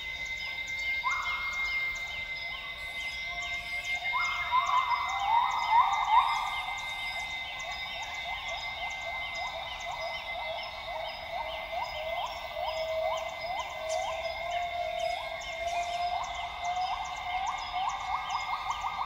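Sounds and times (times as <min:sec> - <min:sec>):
high-pitched drone: 0:00.0 - 0:19.0.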